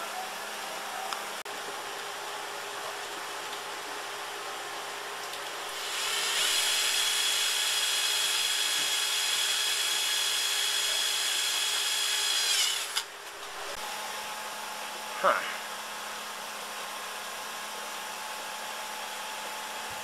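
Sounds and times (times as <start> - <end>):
cordless drill whining: 5.7 - 13.8
drill click: 5.7 - 13.8.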